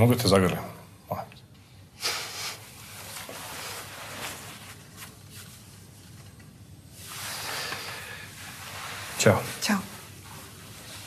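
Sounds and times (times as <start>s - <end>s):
clothing rustling: 2.8s - 11.0s.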